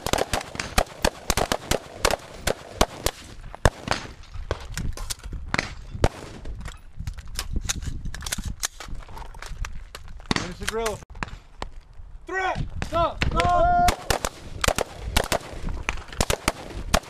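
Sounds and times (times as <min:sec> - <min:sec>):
rapid rifle fire: 0:00.0 - 0:04.1, 0:13.9 - 0:17.0.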